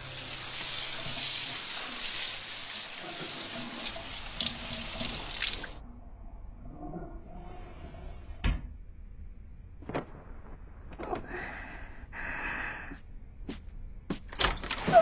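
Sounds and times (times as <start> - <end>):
shower spraying water: 0.0 - 5.8.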